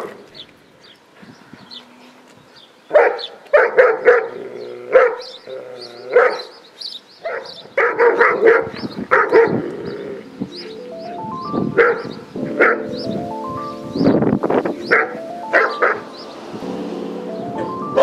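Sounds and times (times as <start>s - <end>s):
dog barking: 2.9s - 5.4s, 6.1s - 6.6s, 7.2s - 9.6s, 11.8s - 12.9s, 14.9s - 16.1s.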